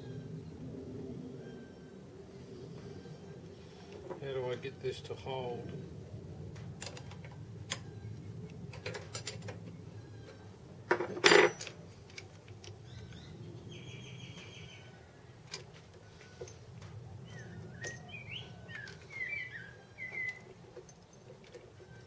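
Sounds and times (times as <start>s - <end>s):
metal tools clinking and knocking: 8.7s - 9.7s, 10.9s - 12.7s
metal clatter: 10.9s - 11.8s.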